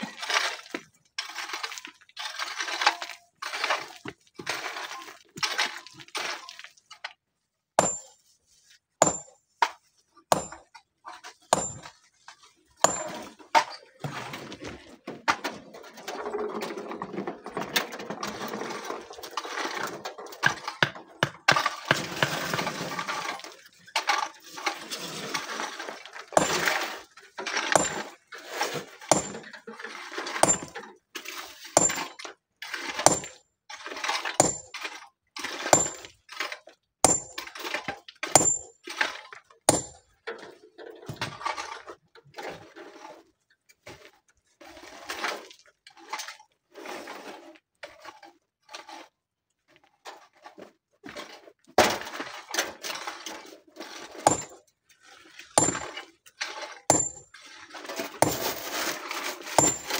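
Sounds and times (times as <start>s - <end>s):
gravel being raked: 0.0s - 6.8s, 46.7s - 49.2s, 53.0s - 59.9s
hand tools striking rock: 7.8s - 8.2s, 9.0s - 9.4s, 10.3s - 10.7s, 11.5s - 11.9s, 12.8s - 13.3s, 26.4s - 27.0s, 27.7s - 28.1s, 29.1s - 29.5s, 30.4s - 30.8s, 31.8s - 32.2s, 33.0s - 33.4s, 34.4s - 34.8s, 35.7s - 36.1s, 37.0s - 37.5s, 38.3s - 38.8s, 39.7s - 40.0s, 54.2s - 54.6s, 55.6s - 56.0s, 56.9s - 57.3s, 58.2s - 58.6s, 59.5s - 59.9s.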